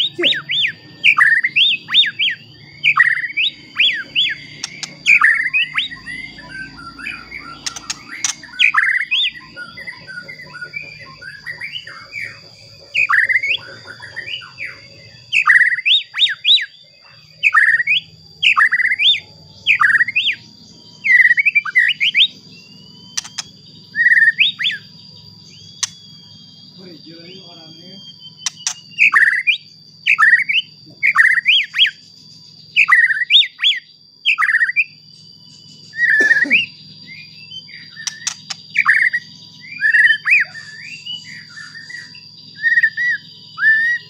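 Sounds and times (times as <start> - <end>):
bird singing whistled phrases: 0.0 - 44.0.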